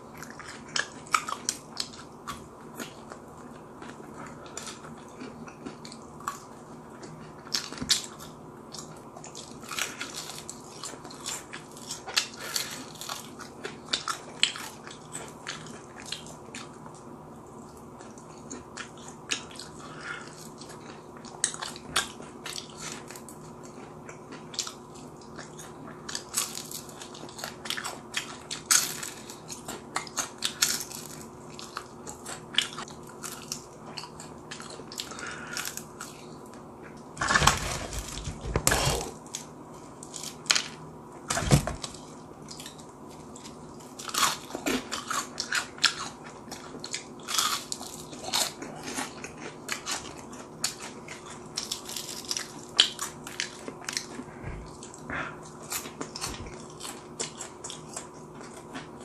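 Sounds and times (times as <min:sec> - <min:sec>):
fried chicken crunching: 0:40.0 - 0:59.0.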